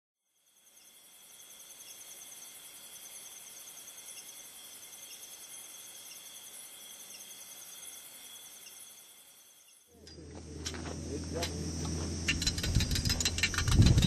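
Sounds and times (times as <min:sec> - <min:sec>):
insects chirping: 0:00.2 - 0:14.0.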